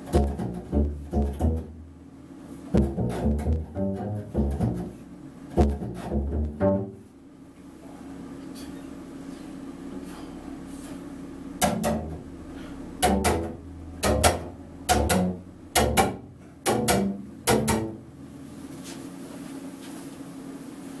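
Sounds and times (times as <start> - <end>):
double bass playing short notes: 0.0 - 7.2, 11.3 - 18.5.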